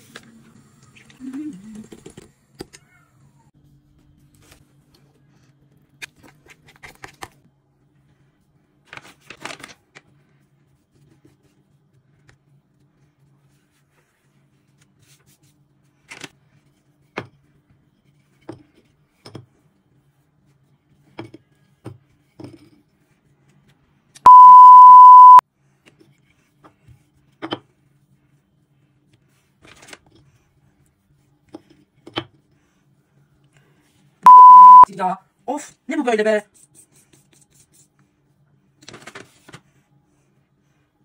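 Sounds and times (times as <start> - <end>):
loud steady beep tone: 24.3 - 25.4, 34.3 - 34.9.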